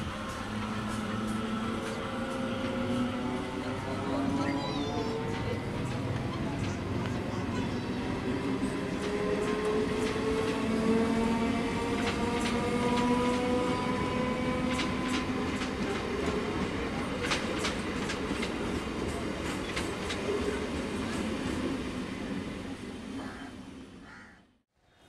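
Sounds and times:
train coaches rumbling: 0.0 - 24.0.

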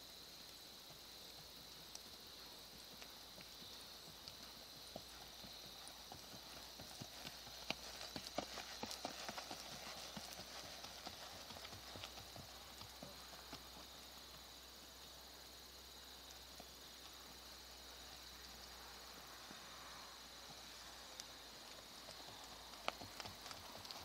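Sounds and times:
hoofbeats on sand: 2.8 - 13.8.

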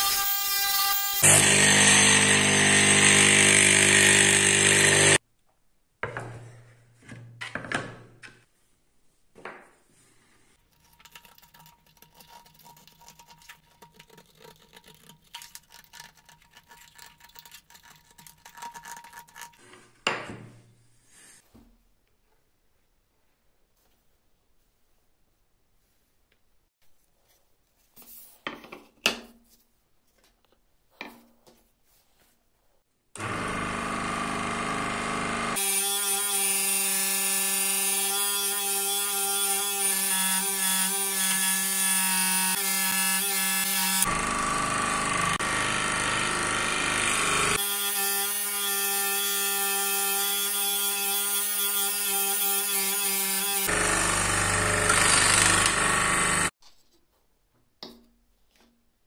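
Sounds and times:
scroll saw cutting wood: 0.0 - 5.2, 33.2 - 56.5.

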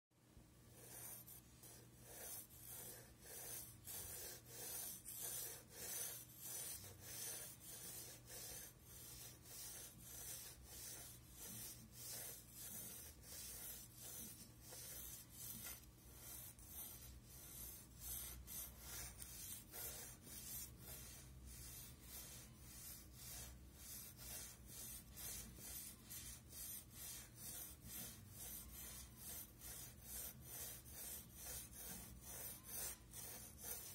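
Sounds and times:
pencil scratching on paper: 0.7 - 33.9.

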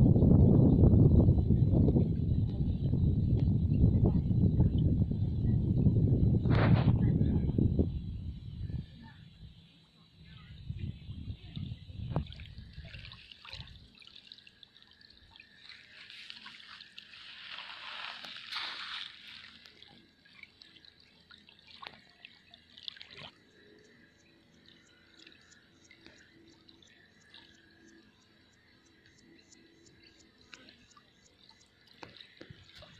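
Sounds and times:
low rumble: 0.0 - 8.9
small waves lapping on sand: 12.2 - 28.0, 30.0 - 32.9.

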